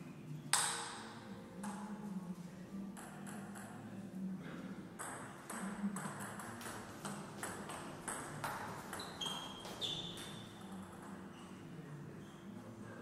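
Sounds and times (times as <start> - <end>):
shoes squeaking on floor: 8.6 - 11.6.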